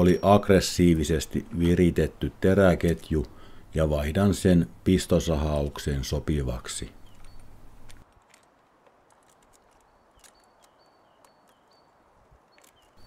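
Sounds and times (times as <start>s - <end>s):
chainsaw chain clicking: 7.2s - 11.7s.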